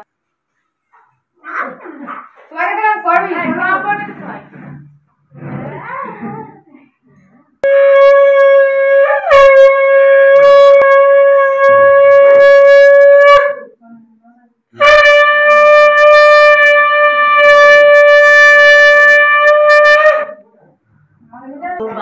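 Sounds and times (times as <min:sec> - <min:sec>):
conch shell blasts: 0:07.6 - 0:13.7, 0:14.8 - 0:20.4.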